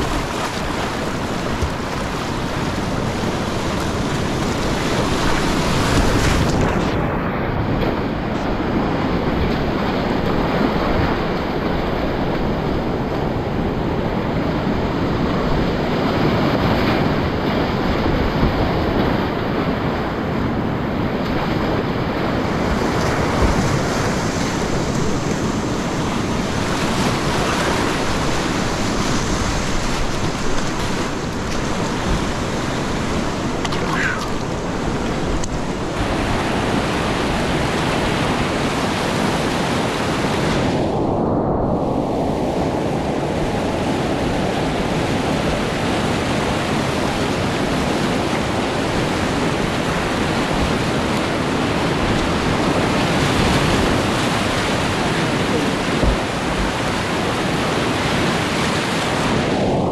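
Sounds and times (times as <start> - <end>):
whitewater rushing: 0.0 - 59.9.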